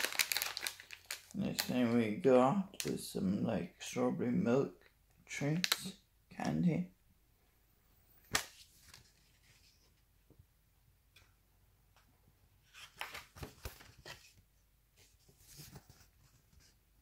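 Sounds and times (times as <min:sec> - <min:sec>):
plastic packaging rustling: 0:00.0 - 0:01.7.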